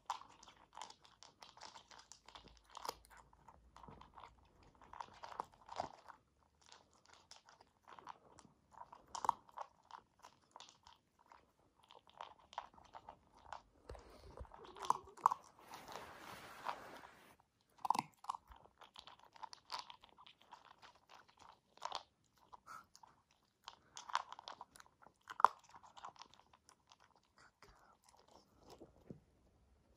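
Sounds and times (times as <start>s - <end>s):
puppy crunching dry kibble: 0.0s - 16.8s, 17.6s - 29.2s
rustling: 13.2s - 17.4s.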